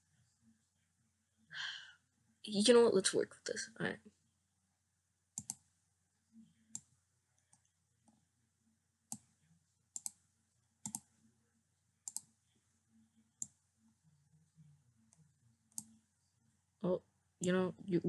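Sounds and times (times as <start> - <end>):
faint low hum: 0.0 - 18.0
computer mouse clicking: 5.4 - 5.6, 9.9 - 10.2, 10.8 - 11.1, 12.0 - 12.3.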